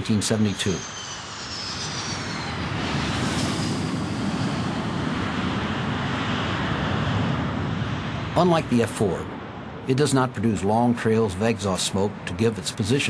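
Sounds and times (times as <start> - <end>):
high whine sliding down: 0.0 - 5.7
jet engine roar: 0.0 - 13.0.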